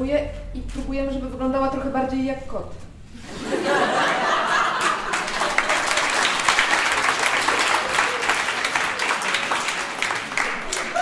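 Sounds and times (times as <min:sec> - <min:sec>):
audience laughing: 0:03.2 - 0:09.7
audience applauding: 0:04.0 - 0:11.0.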